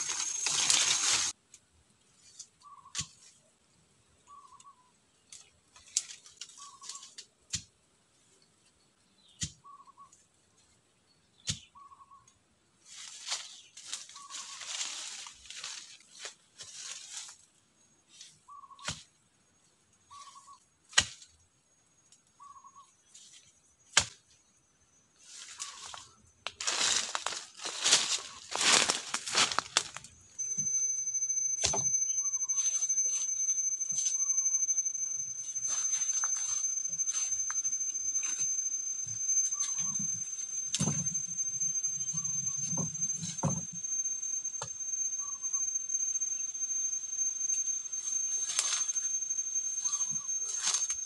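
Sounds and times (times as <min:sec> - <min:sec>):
rustling through dry leaves: 0:00.0 - 0:01.4, 0:12.8 - 0:17.5, 0:25.2 - 0:30.2, 0:35.4 - 0:38.6
whistled call: 0:26.7 - 0:51.0.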